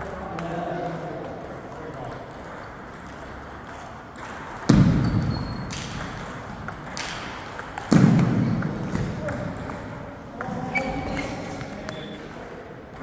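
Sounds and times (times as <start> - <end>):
table tennis ball clicking: 0.4 - 8.0.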